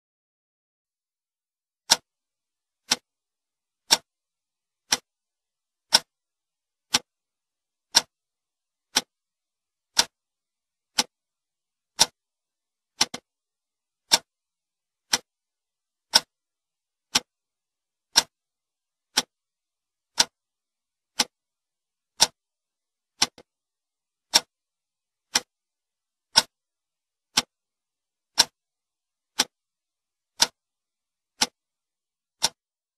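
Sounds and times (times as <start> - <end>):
clock ticking: 1.9 - 2.1, 2.8 - 3.1, 3.8 - 4.1, 4.9 - 5.1, 5.9 - 6.2, 6.9 - 7.1, 7.9 - 8.2, 8.9 - 9.2, 9.9 - 10.2, 10.9 - 11.2, 11.9 - 12.2, 13.0 - 13.3, 14.0 - 14.3, 15.0 - 15.3, 16.1 - 16.4, 17.1 - 17.4, 18.1 - 18.4, 19.1 - 19.4, 20.1 - 20.4, 21.1 - 21.4, 22.1 - 22.4, 23.2 - 23.5, 24.2 - 24.5, 25.2 - 25.5, 26.3 - 26.6, 27.3 - 27.6, 28.3 - 28.6, 29.3 - 29.6, 30.3 - 30.6, 31.3 - 31.6, 32.4 - 32.6.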